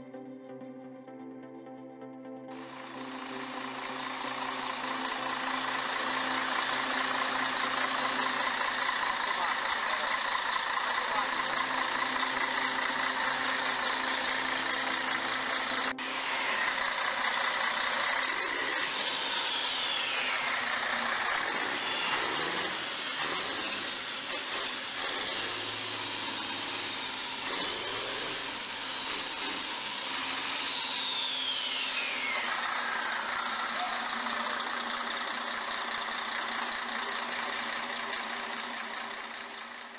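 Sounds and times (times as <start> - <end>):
diesel truck engine running: 2.5 - 39.9
high whistle rising and falling: 11.6 - 34.0.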